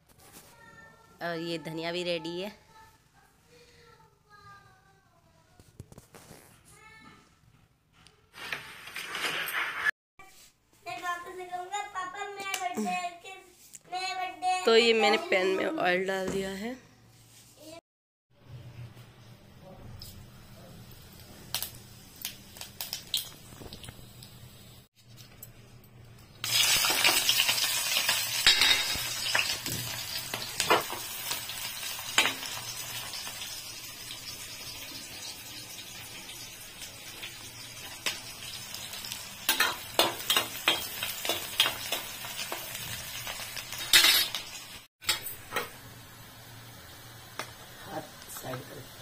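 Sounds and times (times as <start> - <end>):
vegetables sizzling in hot oil: 20.0 - 24.9, 26.4 - 49.0.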